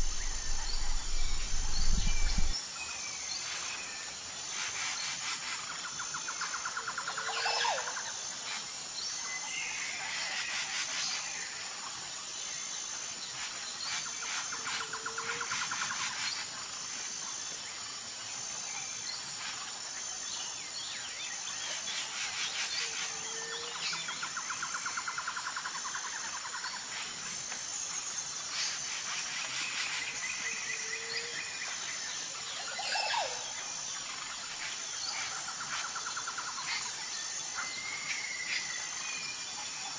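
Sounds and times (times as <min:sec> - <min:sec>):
birds calling and trilling: 0:00.0 - 0:11.3
insects chorus: 0:00.0 - 0:39.9.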